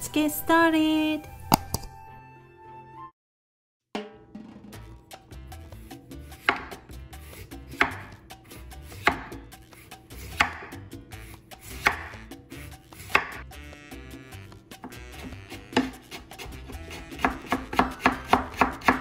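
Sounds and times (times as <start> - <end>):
knife slicing radish on wooden board: 6.2 - 13.4, 14.8 - 19.0.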